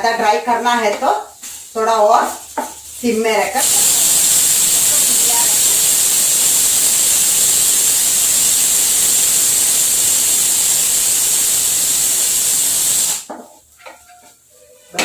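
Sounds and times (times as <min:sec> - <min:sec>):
pressure cooker whistle hiss: 0:03.6 - 0:13.3.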